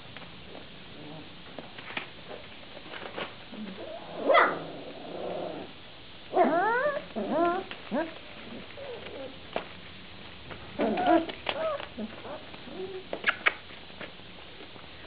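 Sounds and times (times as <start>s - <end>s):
puppy growl: 3.6s - 9.4s, 10.8s - 13.1s
puppies yipping and whining: 10.8s - 13.1s
puppy yelp: 10.8s - 13.4s.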